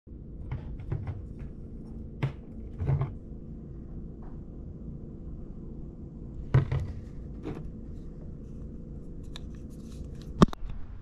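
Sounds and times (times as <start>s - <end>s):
steady low hum: 0.1s - 11.0s.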